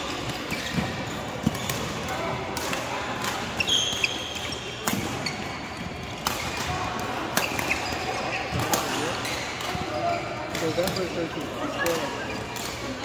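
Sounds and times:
sneaker squeak: 0:00.0 - 0:01.9, 0:03.4 - 0:06.7, 0:07.4 - 0:12.6.

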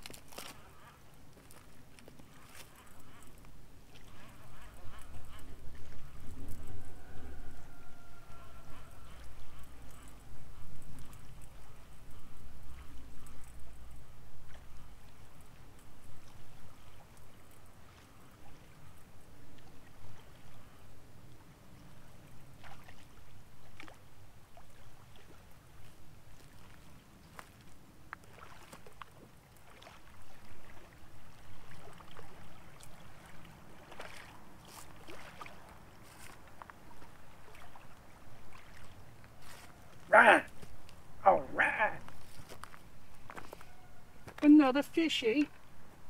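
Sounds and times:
light water splashing: 0:00.0 - 0:46.0.

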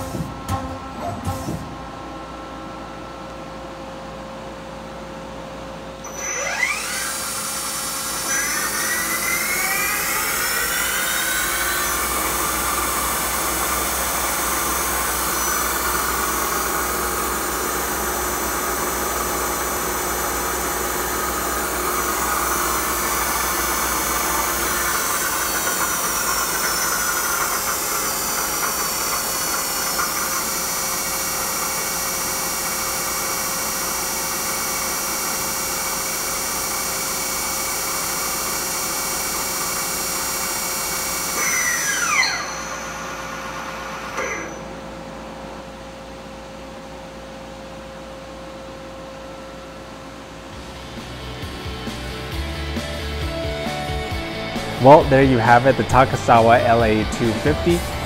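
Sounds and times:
lathe spindle whine: 0:06.0 - 0:45.5.

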